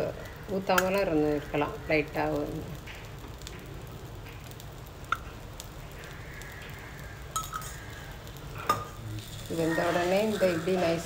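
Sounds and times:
batter sizzling faintly: 0.0s - 11.0s
metal spoon clinking on pan: 7.3s - 7.8s.

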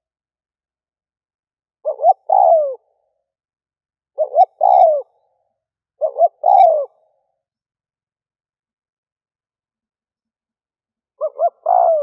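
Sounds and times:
dove cooing: 1.8s - 2.9s, 4.2s - 5.2s, 6.0s - 7.2s, 11.2s - 12.0s.

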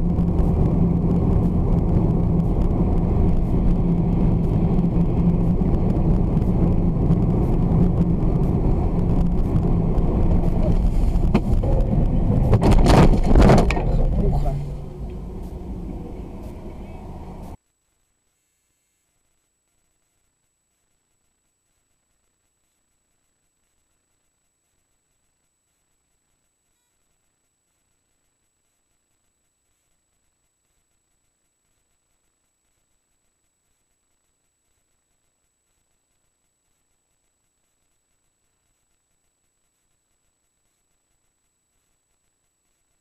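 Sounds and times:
car engine and road noise: 0.0s - 17.6s
faint hiss: 13.8s - 43.0s.

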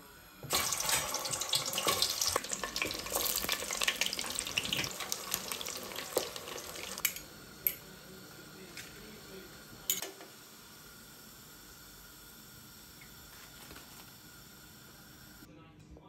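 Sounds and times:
food sizzling in hot oil: 0.4s - 11.8s.

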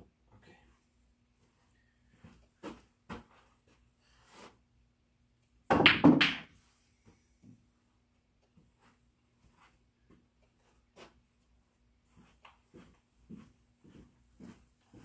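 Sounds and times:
pool balls clicking: 5.7s - 6.5s
pool balls thunking: 5.7s - 6.5s.

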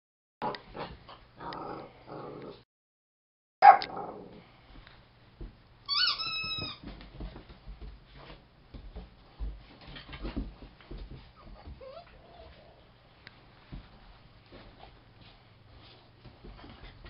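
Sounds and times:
rubber squeak toy: 5.9s - 6.8s
puppy whining: 5.9s - 6.9s, 11.2s - 13.0s.

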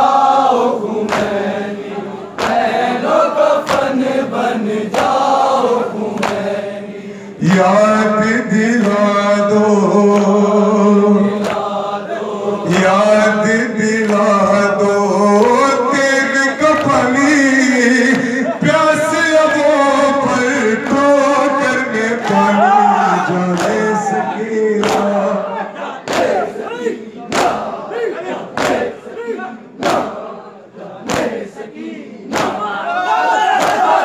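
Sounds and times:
crowd chanting: 0.0s - 34.0s
chest-beating slaps: 1.0s - 1.5s, 2.3s - 2.8s, 3.6s - 4.0s, 4.9s - 5.4s, 6.1s - 6.5s, 11.4s - 11.8s, 23.5s - 23.9s, 24.8s - 25.2s, 26.0s - 26.5s, 27.3s - 27.7s, 28.5s - 29.0s, 29.8s - 30.2s, 31.0s - 31.5s, 32.2s - 32.8s, 33.6s - 34.0s
man chanting over loudspeakers: 6.7s - 34.0s.

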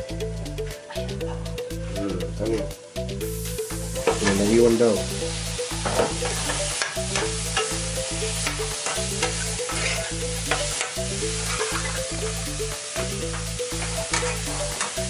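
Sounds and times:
background music with a beat: 0.0s - 15.0s
vegetables sizzling in a frying pan: 3.0s - 15.0s
metal spoon scraping a pan: 8.8s - 12.0s, 13.8s - 14.9s.

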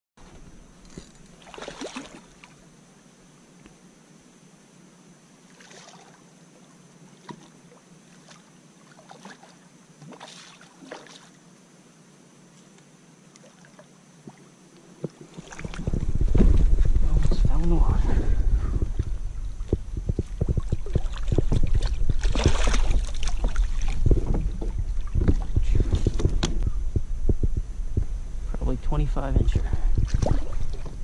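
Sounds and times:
fish splashing at water surface: 20.6s - 24.1s.

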